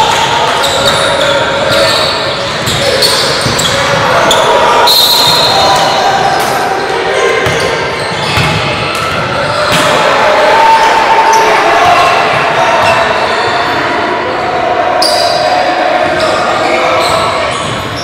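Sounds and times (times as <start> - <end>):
echoing voices: 0.0 - 18.0
basketball bouncing on court: 7.4 - 9.9.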